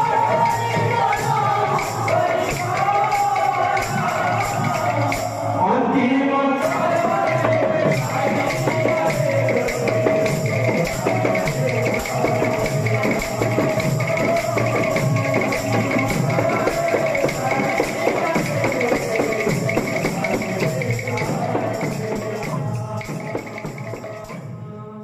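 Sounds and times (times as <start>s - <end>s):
jingle drums shaking: 6.7s - 24.3s
barrel drums beating: 6.9s - 24.1s.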